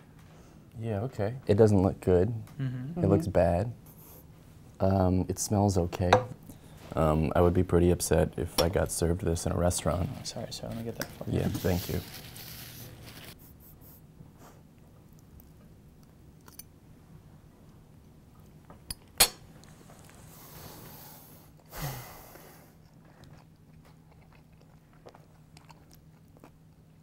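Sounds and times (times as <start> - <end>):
man chewing food: 14.6 - 16.6, 22.4 - 27.0
soft breathy hiss: 19.6 - 22.8.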